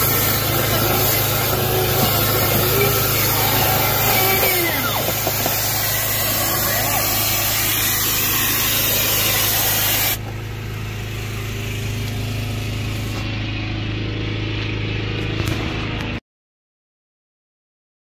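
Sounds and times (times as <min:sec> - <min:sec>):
compressed air hissing through hose: 0:00.0 - 0:13.3
engine hum: 0:00.0 - 0:16.2.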